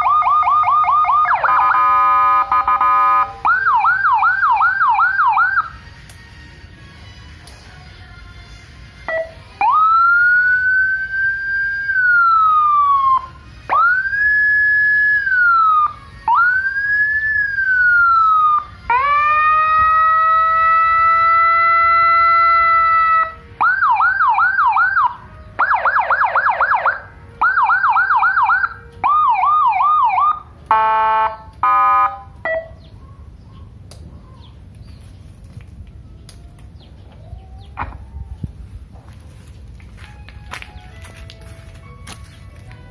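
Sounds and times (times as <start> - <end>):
electronic siren wailing: 0.0 - 5.7, 9.1 - 32.8
siren yelp and warble: 0.0 - 5.8, 9.1 - 32.8.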